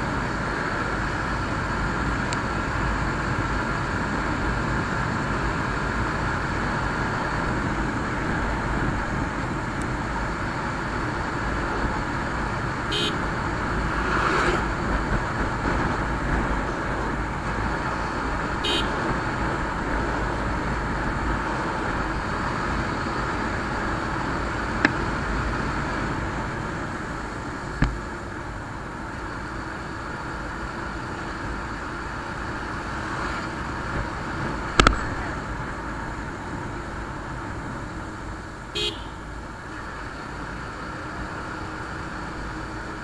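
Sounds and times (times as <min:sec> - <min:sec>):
motorcycle engine at speed: 0:00.0 - 0:43.0
short horn beeps: 0:12.9 - 0:13.2, 0:18.6 - 0:19.0, 0:38.8 - 0:39.2.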